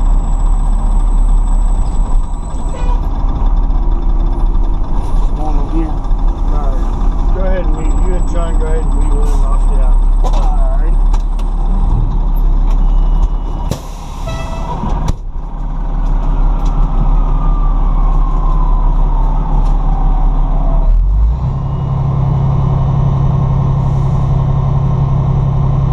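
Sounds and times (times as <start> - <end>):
diesel engine idling: 0.0 - 20.9, 21.6 - 25.9
air brake hiss: 13.7 - 14.7.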